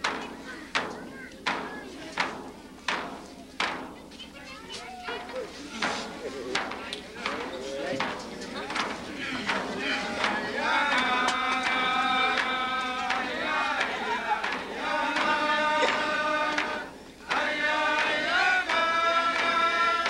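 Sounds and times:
frame drum beats: 0.0 - 20.0
voices chanting in unison: 5.5 - 20.0.

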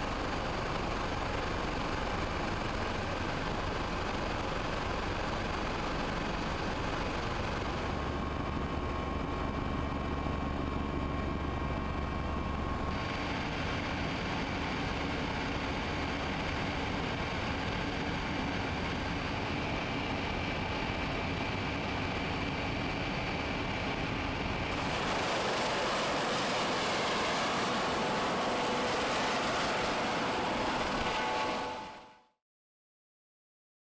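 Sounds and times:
helicopter engine and rotor: 0.0 - 32.3.

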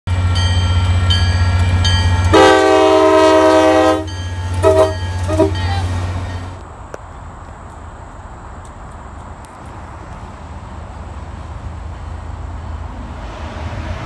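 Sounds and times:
crossing bell dinging: 0.1 - 6.6
diesel locomotive engine rumble: 0.1 - 14.0
train horn blasts: 2.2 - 6.5.

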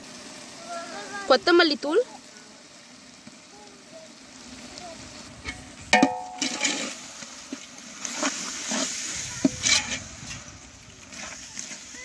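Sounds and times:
ladle stirring thick sauce: 5.2 - 11.9
metal ladle striking pot: 5.5 - 7.0.

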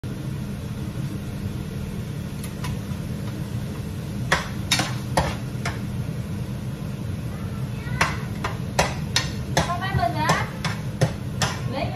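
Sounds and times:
kitchen fan humming: 0.0 - 11.9
utensil knocking on cookware: 4.3 - 5.9, 8.0 - 11.9.

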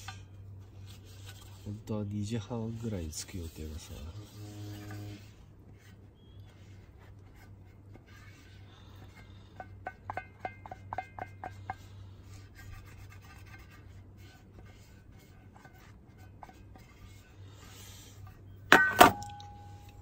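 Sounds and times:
faint rubbing: 0.0 - 9.7, 11.3 - 18.6
low steady hum: 0.0 - 20.0
light ringing taps: 18.7 - 20.0.

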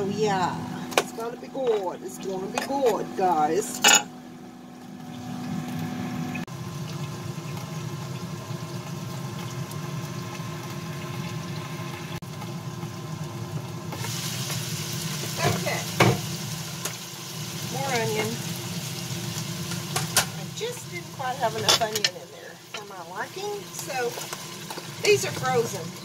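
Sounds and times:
low appliance hum: 0.0 - 26.0
broccoli sizzling in a skillet: 6.4 - 26.0.

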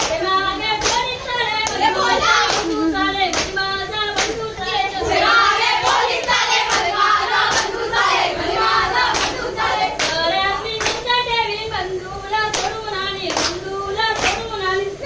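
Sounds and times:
sharp hand claps: 0.0 - 0.2, 0.8 - 1.8, 2.5 - 3.6, 4.2 - 4.4, 7.5 - 7.8, 9.1 - 9.4, 10.0 - 10.2, 10.8 - 11.2, 12.5 - 14.5
voices singing folk song: 0.0 - 15.0.

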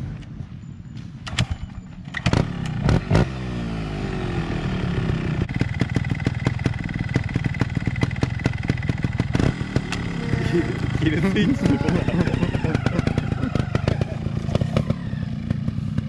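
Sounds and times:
motorcycle engine throttle blips: 0.0 - 16.0
motorcycle engine idling: 3.6 - 16.0.

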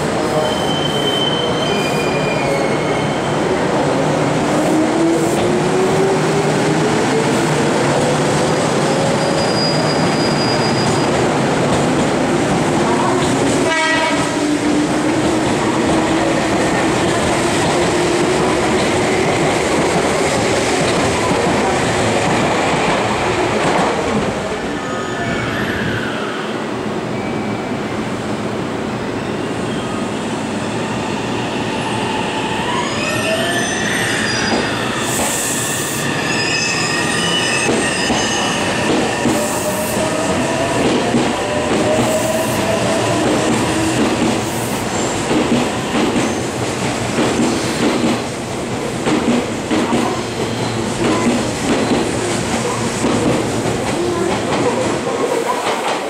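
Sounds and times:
high wheel squeal: 0.4 - 3.4, 9.1 - 11.2, 32.6 - 39.8.

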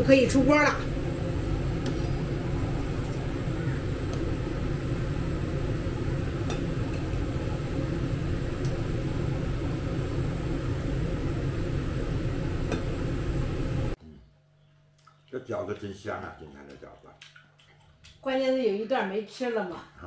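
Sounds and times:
water boiling and bubbling: 0.0 - 14.0.

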